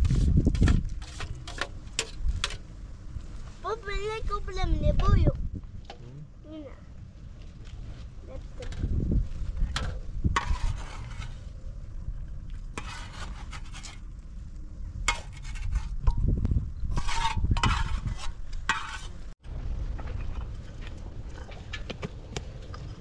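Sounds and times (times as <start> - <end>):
utensil scraping a metal pot: 0.1 - 2.6, 9.7 - 11.5, 12.8 - 14.0, 15.1 - 19.4
steady low rumble: 15.8 - 23.0.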